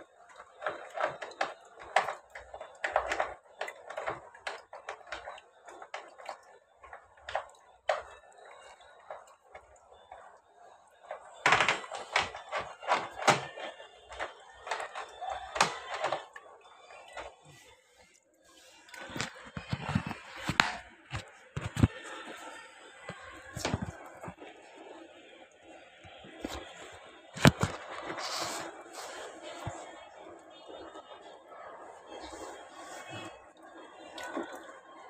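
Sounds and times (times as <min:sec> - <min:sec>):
hands handling plastic and metal parts: 0:11.0 - 0:24.5, 0:26.1 - 0:29.9.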